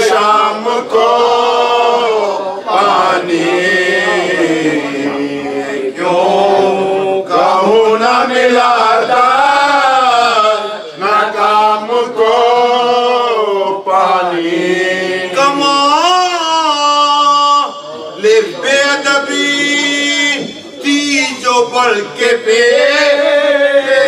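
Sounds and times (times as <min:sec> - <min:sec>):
man chanting a lament: 0:00.0 - 0:24.0.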